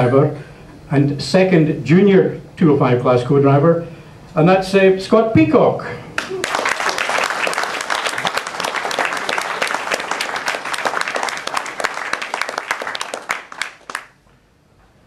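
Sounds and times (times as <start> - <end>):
audience applauding: 6.2 - 14.2.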